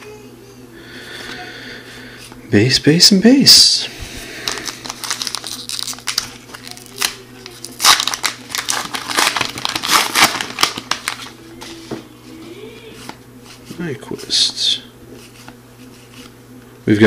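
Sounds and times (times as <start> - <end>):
plastic wrapper tearing and crinkling: 4.4 - 11.4.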